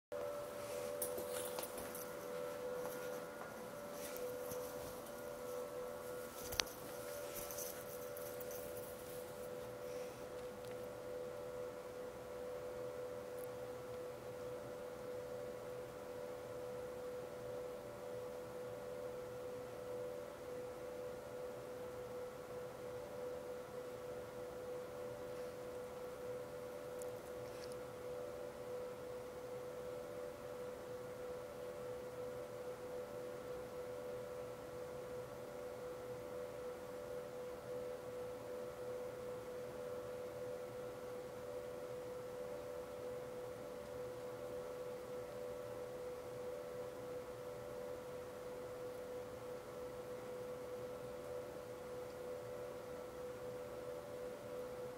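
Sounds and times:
faint higher tones: 0.1 - 30.8
steady mid-pitched tone: 0.1 - 51.7
steady whine: 0.1 - 54.9.

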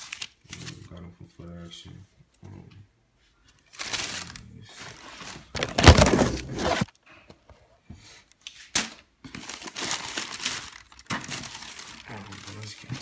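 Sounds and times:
tissue paper rustling: 3.7 - 6.9, 9.3 - 13.0.

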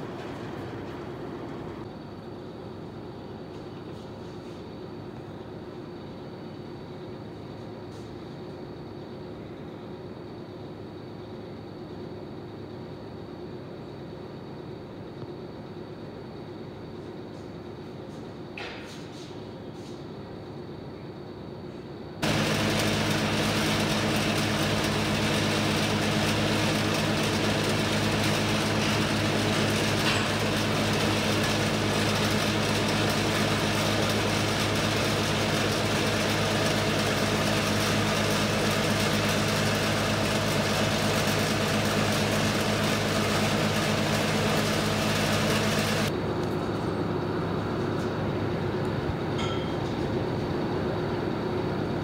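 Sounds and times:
mechanical drone with hum: 19.6 - 52.0.

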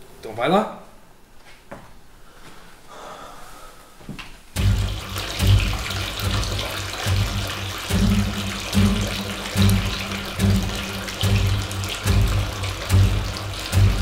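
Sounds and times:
bathtub jets water bubbling: 4.6 - 14.0
low hum: 4.6 - 14.0.

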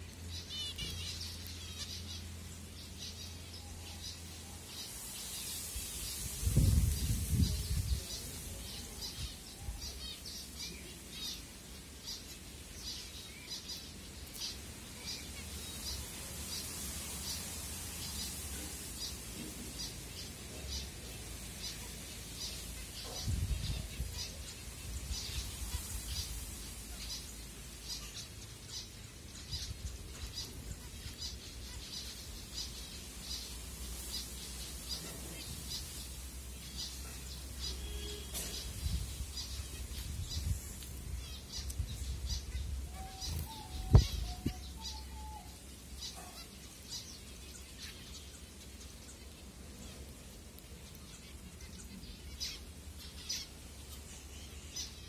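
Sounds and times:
finches chirping: 36.6 - 50.0.

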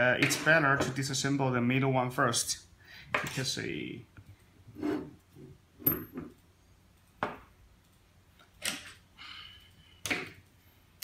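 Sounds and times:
tool scraping on table: 4.7 - 6.3.

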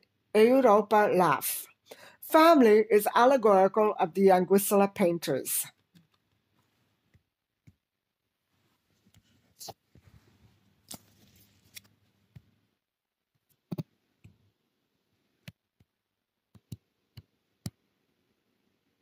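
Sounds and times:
low room noise: 0.0 - 19.0
faint irregular clicks: 5.8 - 7.8, 15.4 - 17.8.

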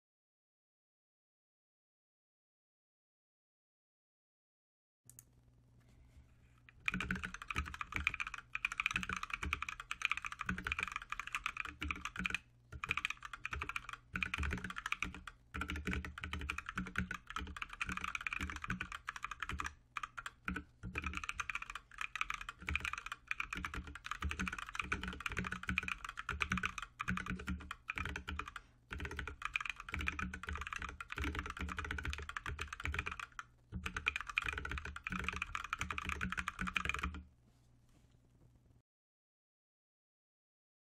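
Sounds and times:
fast keyboard typing: 6.8 - 37.2.

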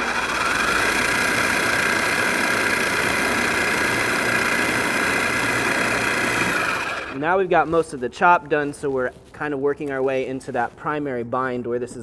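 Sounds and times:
food processor whining: 0.0 - 7.2
meat churning in processor: 0.0 - 7.2.

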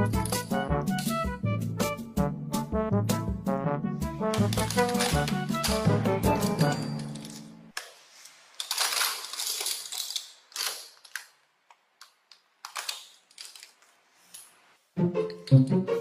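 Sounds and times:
plastic toys rattling in bin: 0.0 - 1.2, 4.3 - 11.4, 12.3 - 13.9
background music: 0.0 - 7.7, 14.9 - 16.0
plastic pieces clicking: 4.3 - 13.9.

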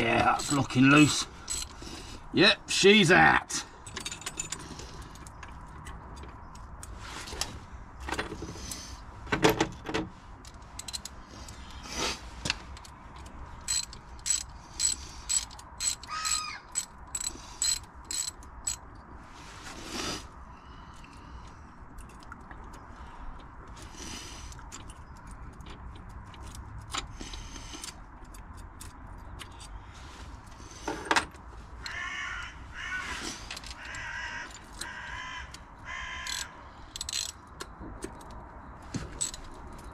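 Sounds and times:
ratchet clicks: 0.4 - 0.7, 1.4 - 1.8, 10.4 - 11.2, 12.8 - 18.8, 36.2 - 38.4, 39.2 - 39.9
crows cawing: 16.1 - 16.7, 31.8 - 36.8.

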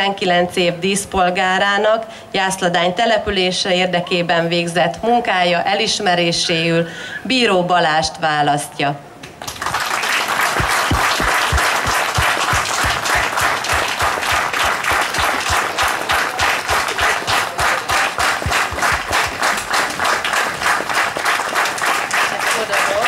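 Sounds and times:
crowd applauding: 9.4 - 23.0
rhythmic clapping in unison: 9.4 - 23.0.

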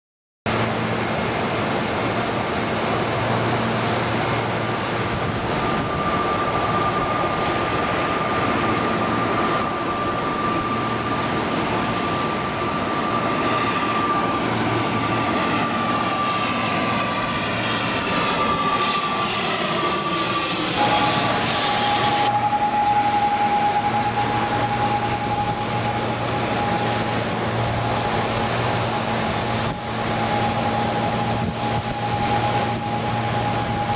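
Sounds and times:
high engine whine: 0.5 - 33.9
propeller airliner drone: 0.5 - 33.9.

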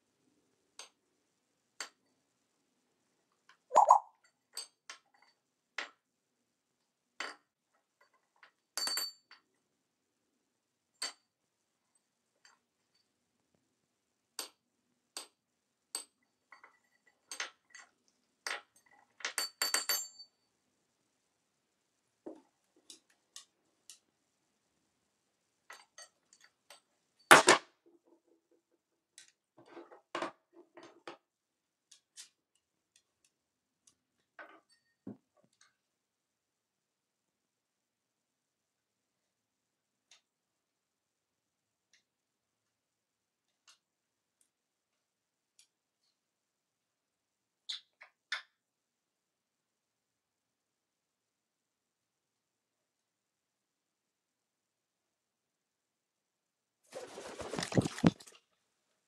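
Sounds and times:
parrot beak and feet tapping: 3.7 - 4.1, 57.0 - 58.3.

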